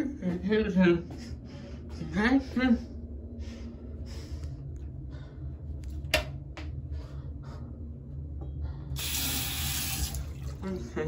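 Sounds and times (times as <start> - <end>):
low room hum: 0.0 - 11.0
water rushing from faucet: 9.0 - 10.8.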